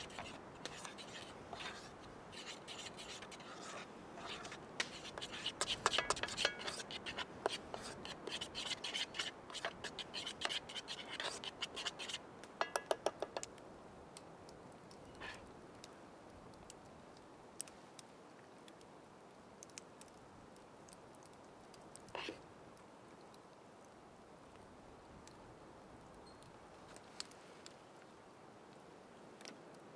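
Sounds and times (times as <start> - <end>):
whisk scraping in wooden bowl: 0.0 - 13.2
light taps on bowl: 12.6 - 13.5.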